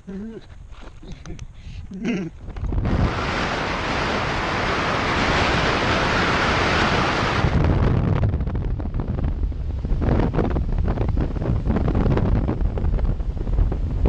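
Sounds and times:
low wind buffeting: 0.0s - 14.0s
wind rushing over microphone: 0.0s - 14.0s.

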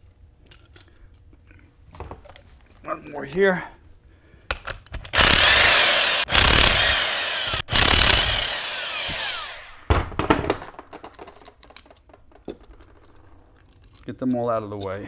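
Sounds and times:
impact wrench spinning bolts: 5.1s - 9.8s.

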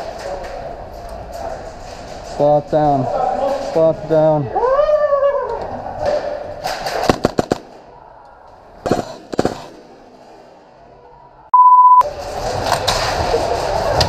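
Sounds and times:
airsoft guns firing: 6.1s - 8.0s, 8.8s - 10.6s
censor bleep: 11.5s - 12.0s.

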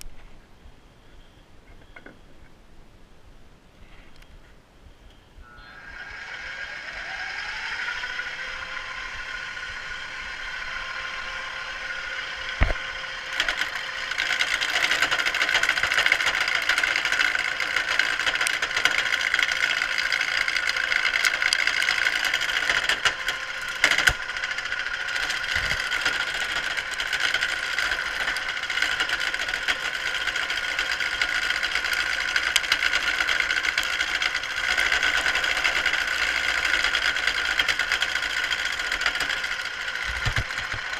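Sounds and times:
lathe motor whine: 5.4s - 40.9s
turning tool scraping wood: 12.6s - 40.9s.

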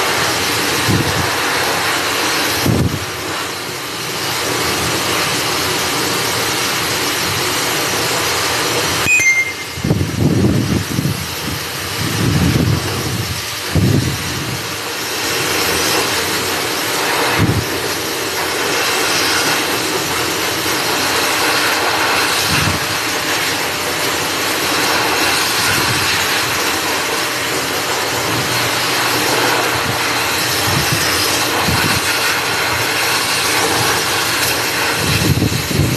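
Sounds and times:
pet grooming blower rushing air: 0.0s - 9.0s, 9.8s - 35.9s
low buffeting gusts: 9.8s - 14.8s.

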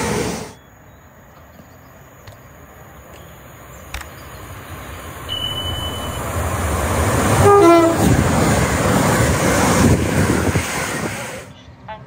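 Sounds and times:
train rumble: 0.0s - 12.0s
two-tone train horn: 5.3s - 6.5s, 7.3s - 8.2s.

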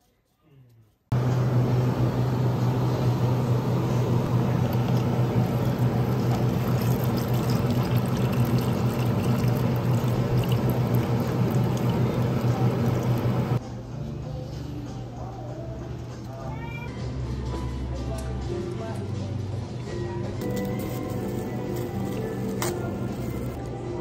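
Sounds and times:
steady low hum: 1.1s - 13.6s
liquid pouring into plastic cup: 4.4s - 13.6s.

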